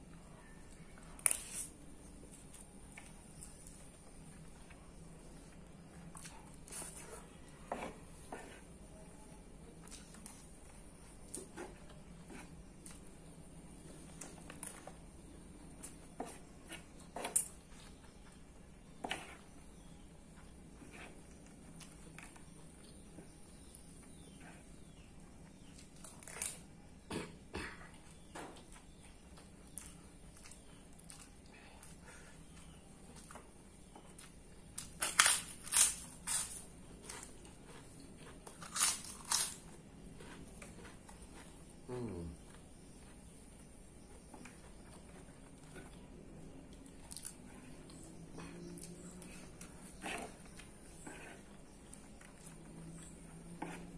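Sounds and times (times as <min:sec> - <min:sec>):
chewing: 0:00.1 - 0:08.7, 0:27.8 - 0:53.9
crackers crunching: 0:25.6 - 0:26.7, 0:34.0 - 0:42.1, 0:44.4 - 0:48.0.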